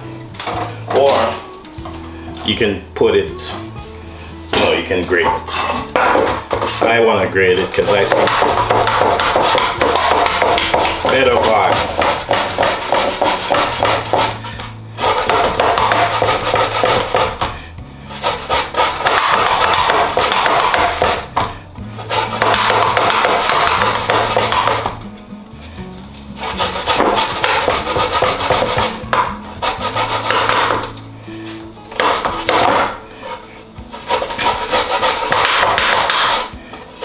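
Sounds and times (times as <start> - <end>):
background music with bass line: 0.0 - 37.0
grater rasping root: 7.8 - 17.4, 18.1 - 21.2, 22.0 - 24.9, 26.4 - 30.9, 32.0 - 37.0.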